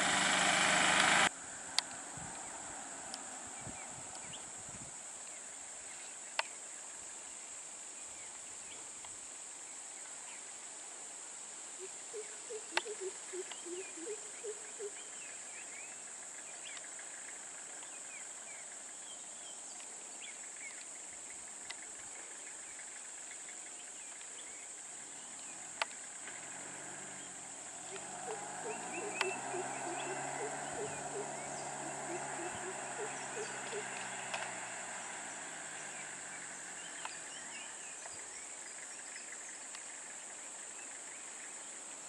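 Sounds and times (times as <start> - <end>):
bird chirps: 11.8 - 25.6, 27.2 - 34.5.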